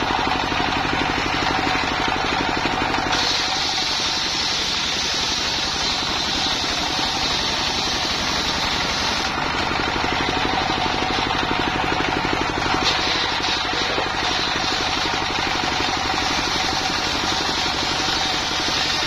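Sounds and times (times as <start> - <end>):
diesel engine chugging: 0.0 - 19.0
saw blade cutting whine: 1.3 - 19.0.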